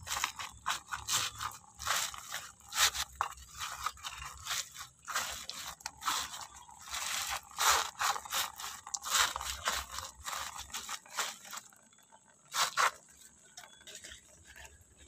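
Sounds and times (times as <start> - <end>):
hands rubbing wet cloth: 0.0 - 11.6.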